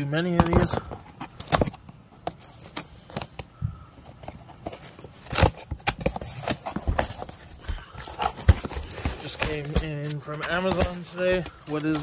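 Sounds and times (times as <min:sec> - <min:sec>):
packing tape crackling: 0:00.2 - 0:12.0
cardboard box being opened: 0:00.3 - 0:12.0.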